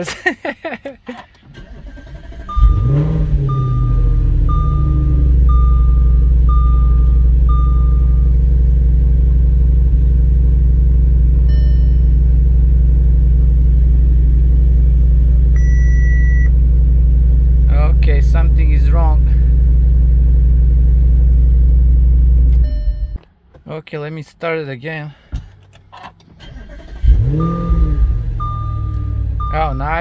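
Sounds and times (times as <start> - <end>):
car engine starting and idling: 0.2 - 23.9, 25.2 - 30.0
dashboard warning chime beeps: 2.4 - 8.4, 11.5 - 12.2, 15.6 - 16.5, 22.6 - 23.3, 27.2 - 30.0.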